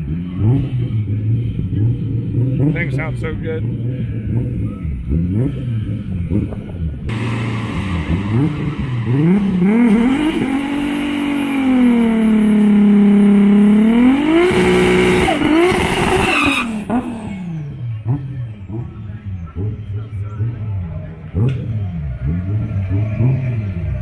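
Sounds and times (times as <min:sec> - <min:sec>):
car engine revving: 0:00.0 - 0:24.0
tyres screeching: 0:14.0 - 0:17.1.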